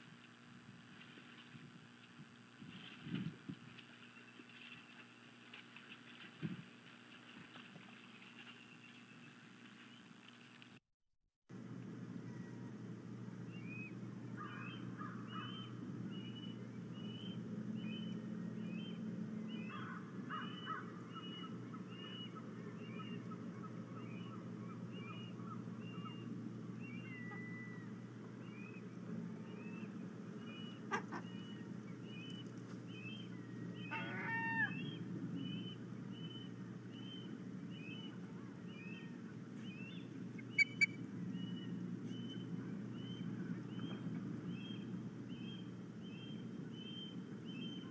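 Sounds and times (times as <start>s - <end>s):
low steady background noise: 0.0s - 10.8s, 11.5s - 47.9s
osprey whistled calls: 13.5s - 23.4s, 24.0s - 47.9s.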